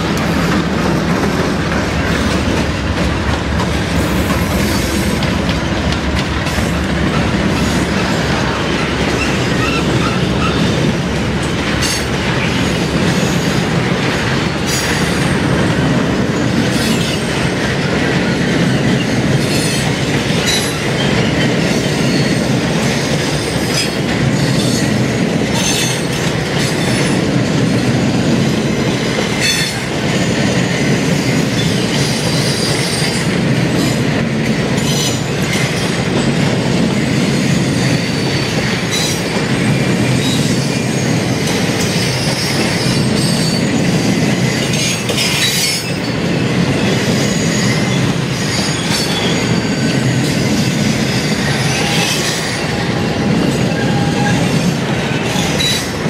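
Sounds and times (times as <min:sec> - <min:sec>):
wheels clicking over rail joints: 0:00.0 - 0:37.0
freight train rumbling past: 0:00.0 - 0:56.0.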